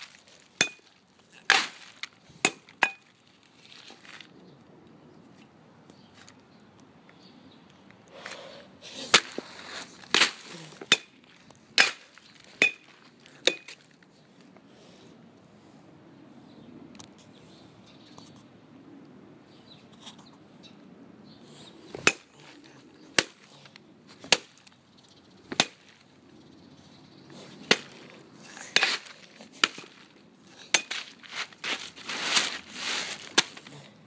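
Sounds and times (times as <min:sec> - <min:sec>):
pumpkin being smashed: 0:00.0 - 0:02.8, 0:10.1 - 0:11.1, 0:25.5 - 0:26.0, 0:27.7 - 0:28.0.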